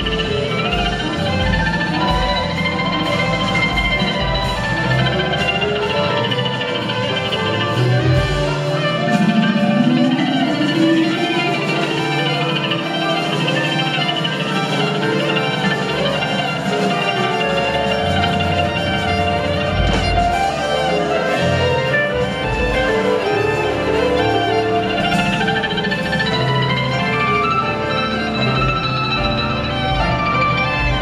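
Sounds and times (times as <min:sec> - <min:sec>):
fiddle: 0:00.0 - 0:31.0
live string band music: 0:00.0 - 0:31.0
low bass notes: 0:00.0 - 0:31.0.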